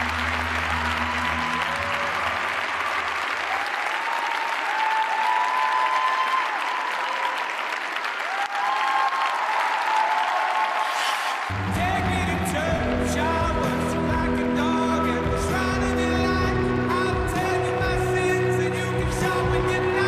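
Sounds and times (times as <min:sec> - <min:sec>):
audience applauding and cheering: 0:00.0 - 0:20.0
low music notes: 0:11.5 - 0:20.0.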